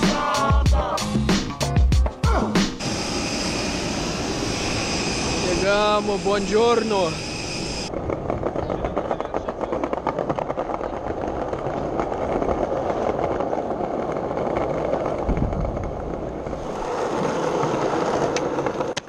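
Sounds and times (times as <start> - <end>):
skateboard wheels rolling on stone: 7.8 - 19.0.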